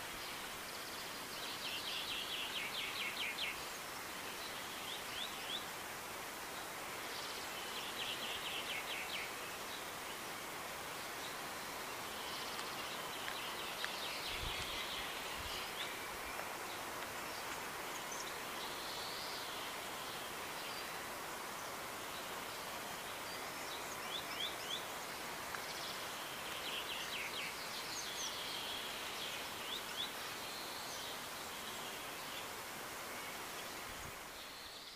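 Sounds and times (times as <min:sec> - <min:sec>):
small birds chirping: 0:00.0 - 0:05.8, 0:06.4 - 0:34.9
steady background hiss: 0:00.0 - 0:34.9.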